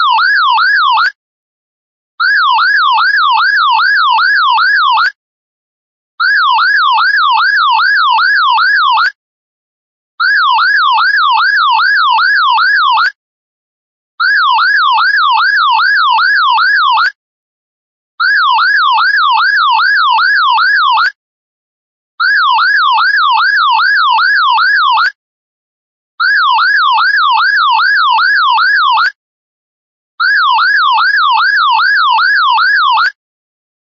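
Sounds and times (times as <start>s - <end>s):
warbling electronic alarm: 0.0s - 1.2s, 2.2s - 5.1s, 6.2s - 9.2s, 10.2s - 13.2s, 14.2s - 17.2s, 18.2s - 21.2s, 22.2s - 25.2s, 26.2s - 29.2s, 30.2s - 33.2s.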